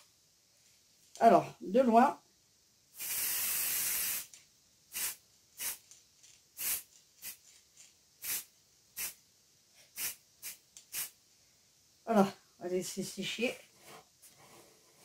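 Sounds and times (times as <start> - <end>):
spray-paint can hissing: 3.0 - 6.0, 6.6 - 9.2, 9.9 - 11.2.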